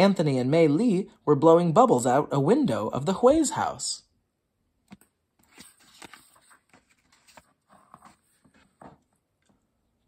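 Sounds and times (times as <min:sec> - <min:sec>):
paper rustling: 0:05.4 - 0:09.2.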